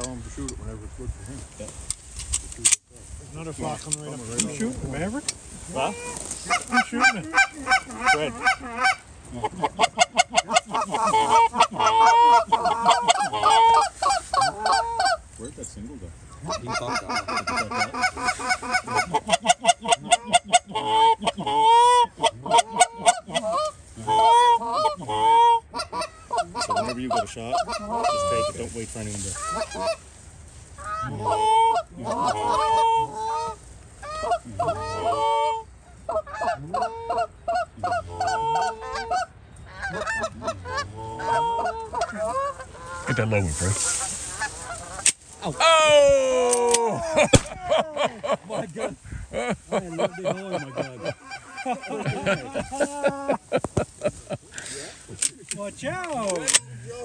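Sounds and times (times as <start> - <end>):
geese honking and clucking: 3.4 - 57.0.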